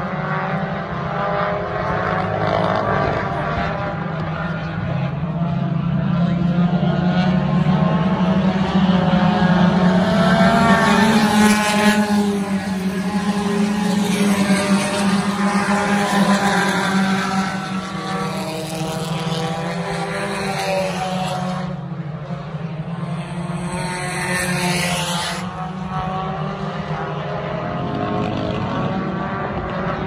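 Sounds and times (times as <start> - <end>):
race car engines revving: 0.0 - 30.0.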